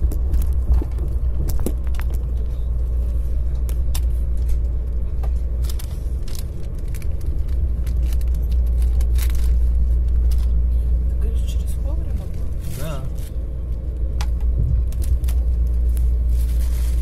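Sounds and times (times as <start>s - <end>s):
train interior low rumble: 0.0s - 17.0s.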